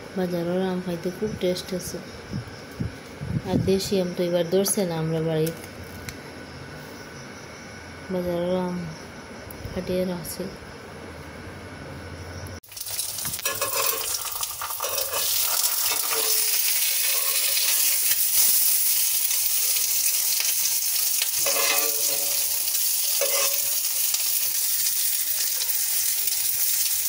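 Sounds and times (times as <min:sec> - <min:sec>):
egg sizzling in oil: 0:12.6 - 0:27.0
metal spatula scraping a pan: 0:13.3 - 0:18.7, 0:21.2 - 0:24.1.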